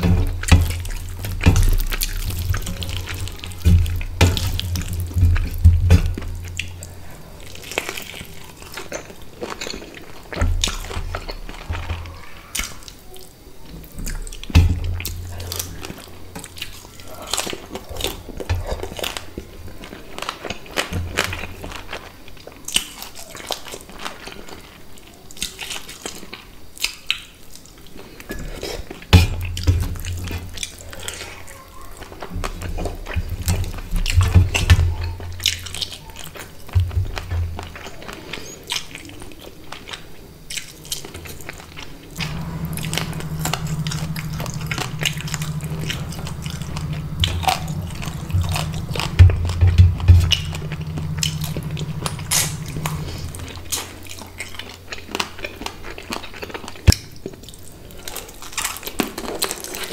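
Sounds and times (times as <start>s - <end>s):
low thumps: 0.0s - 7.6s, 42.2s - 54.4s
food squishing against steel plate: 0.0s - 12.9s, 13.7s - 21.8s, 28.3s - 57.6s.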